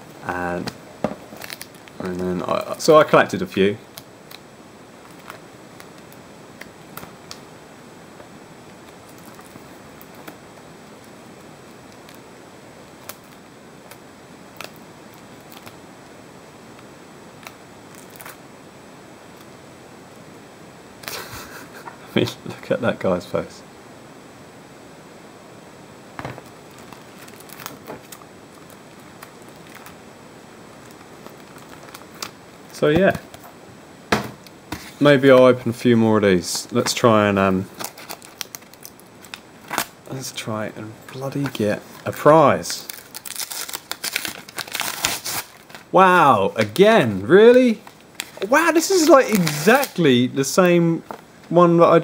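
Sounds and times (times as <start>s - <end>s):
steady hiss: 0.0s - 52.0s
plastic pages crinkling and clicking: 26.7s - 30.0s, 41.1s - 45.8s.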